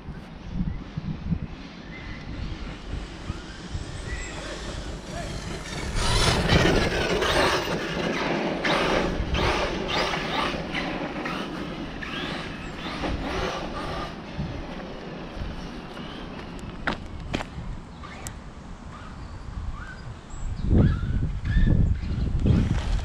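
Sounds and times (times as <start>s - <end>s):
tyre noise: 2.4s - 18.2s
electric motor whining: 2.8s - 14.6s.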